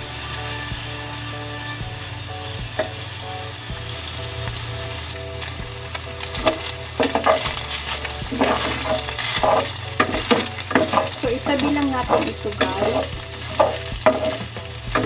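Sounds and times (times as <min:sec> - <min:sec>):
pork frying in a pan: 0:00.0 - 0:15.0
spoon scraping a pan: 0:06.3 - 0:15.0.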